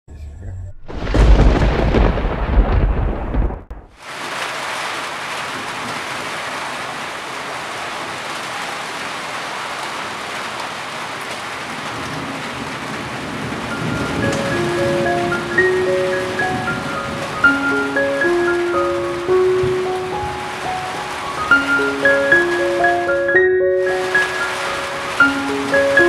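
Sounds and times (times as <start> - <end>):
deep rumble of thunder: 0.9 - 4.0, 12.0 - 17.6
heavy rain: 0.9 - 26.0.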